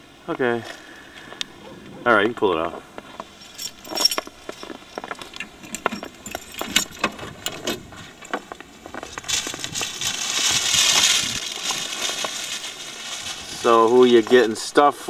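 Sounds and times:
plastic bags rustling: 0:03.3 - 0:14.8.

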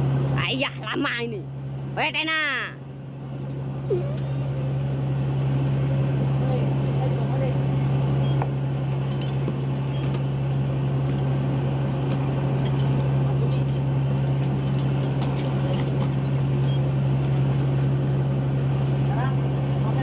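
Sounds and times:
boat machinery humming: 0:00.0 - 0:20.0
light clinks and clicks: 0:08.9 - 0:11.2, 0:12.6 - 0:13.9, 0:14.6 - 0:17.5.

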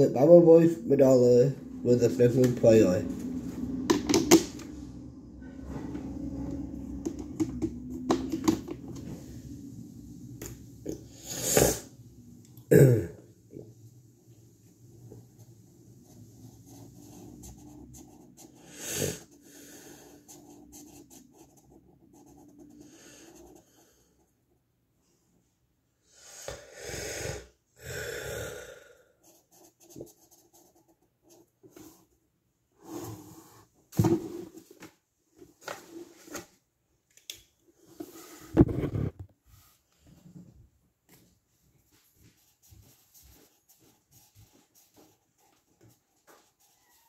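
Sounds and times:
sniff: 0:11.1 - 0:11.9, 0:26.0 - 0:28.9
pencil scratching on paper: 0:16.0 - 0:24.2, 0:29.2 - 0:32.1, 0:42.4 - 0:47.0.

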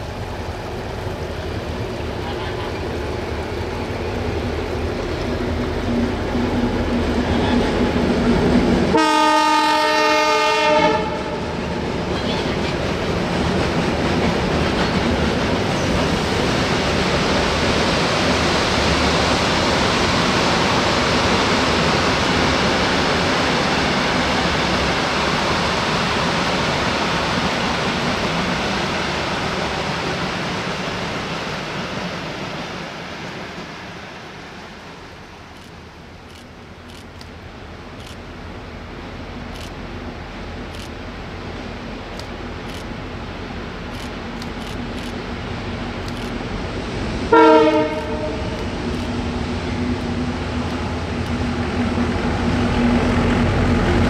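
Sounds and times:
diesel locomotive running: 0:00.0 - 0:54.0
freight train wagons rolling past: 0:00.0 - 0:54.0
locomotive horn: 0:08.9 - 0:11.5, 0:47.3 - 0:48.6.

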